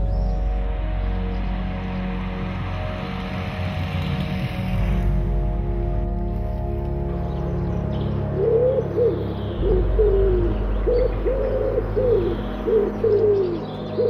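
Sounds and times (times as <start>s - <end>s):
low rumble: 0.0s - 13.7s
pigeons cooing: 8.4s - 14.0s.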